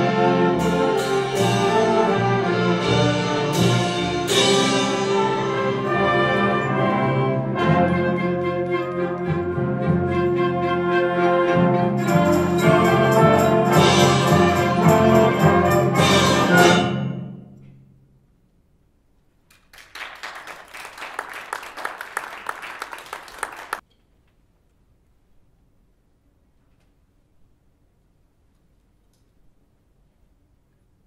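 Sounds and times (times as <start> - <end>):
concert band playing: 0.0 - 17.2
audience applause: 19.5 - 23.8.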